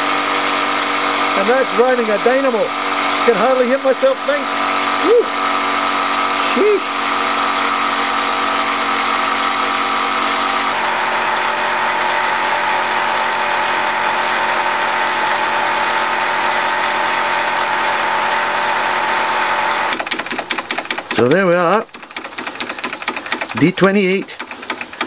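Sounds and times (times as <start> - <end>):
toy steam engine whirring: 19.9 - 25.0.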